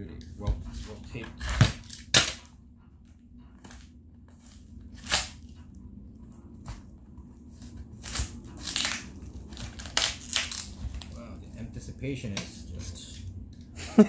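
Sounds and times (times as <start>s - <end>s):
packing tape ripping off cardboard: 1.4s - 2.5s, 3.7s - 5.5s, 7.6s - 11.2s.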